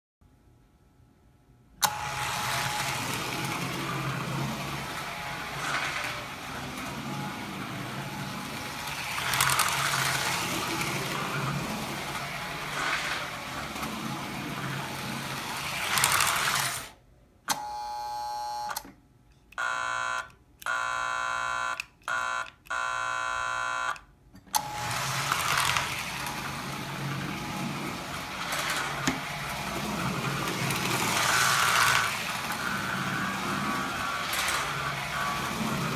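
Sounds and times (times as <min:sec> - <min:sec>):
toy train motor hum and rattle: 0:01.8 - 0:17.0, 0:19.6 - 0:35.9.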